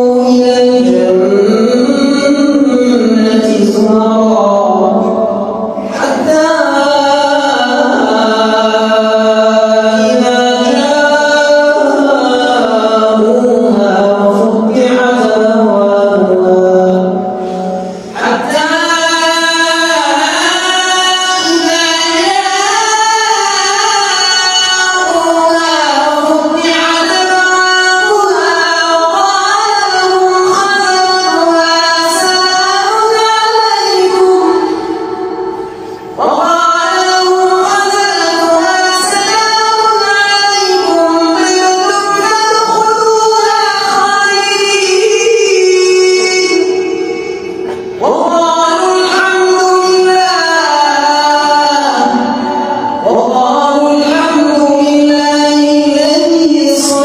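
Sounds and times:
man reciting melodic chant: 0:00.0 - 0:57.0.

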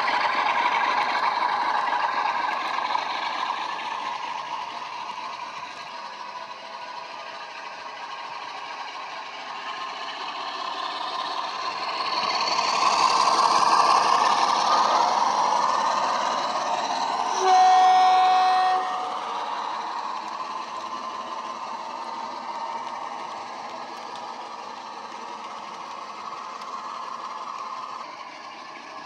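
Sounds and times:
diesel engine through speaker: 0:12.6 - 0:19.8
train horn blast: 0:17.3 - 0:19.8.

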